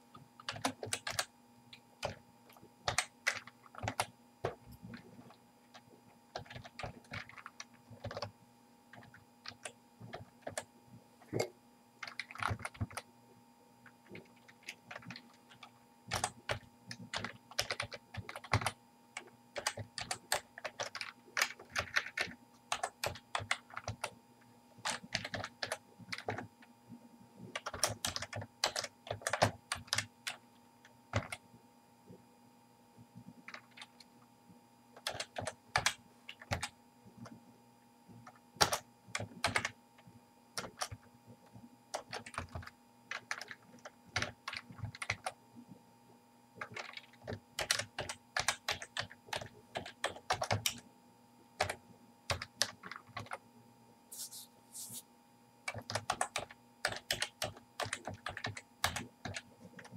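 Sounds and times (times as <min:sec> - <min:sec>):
faint steady hum: 0:00.0 - 0:59.9
computer keyboard typing: 0:00.1 - 0:01.3, 0:02.0 - 0:02.2, 0:02.8 - 0:08.3, 0:08.9 - 0:10.7, 0:11.4 - 0:13.1, 0:13.8 - 0:24.2, 0:24.8 - 0:26.5, 0:27.5 - 0:30.4, 0:31.1 - 0:31.4, 0:33.4 - 0:34.1, 0:35.0 - 0:37.4, 0:38.2 - 0:39.8, 0:40.6 - 0:41.1, 0:41.9 - 0:45.4, 0:46.6 - 0:50.8, 0:51.6 - 0:53.4, 0:55.7 - 0:59.9.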